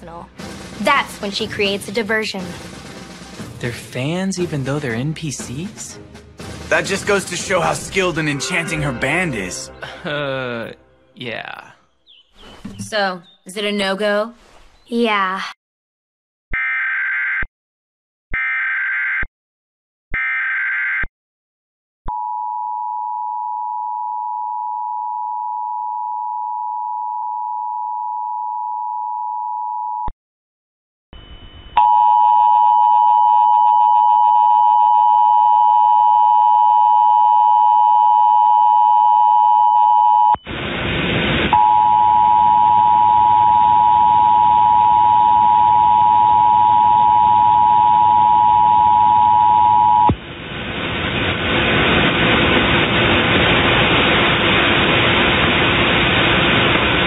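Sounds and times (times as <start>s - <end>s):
two-tone alarm: 31.2s - 40.4s, 41.6s - 50.1s
hum: 40.4s - 57.0s.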